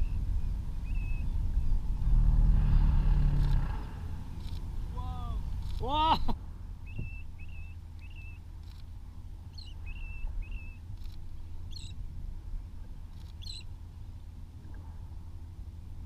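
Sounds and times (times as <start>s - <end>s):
high whistled bird calls: 0.0s - 1.8s, 6.8s - 8.4s, 9.5s - 10.8s, 13.4s - 13.7s
raspy bird calls: 13.3s - 13.7s.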